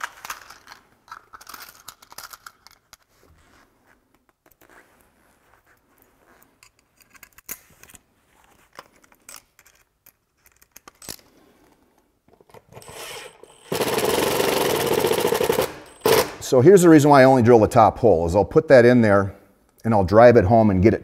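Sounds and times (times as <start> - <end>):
power drill running: 12.8 - 16.5.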